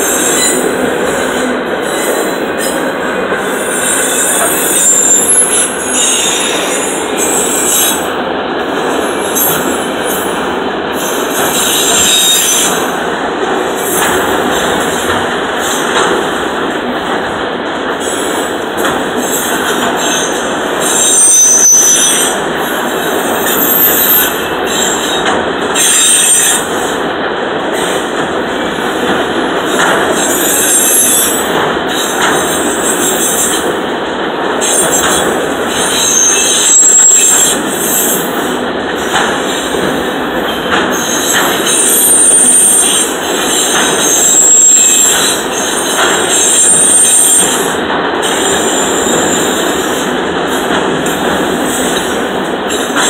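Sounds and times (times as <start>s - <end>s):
high-pitched wheel squeals: 0.0s - 0.6s, 1.8s - 8.0s, 20.0s - 22.4s, 41.0s - 47.6s
train wheels rumbling on rail: 0.0s - 53.0s.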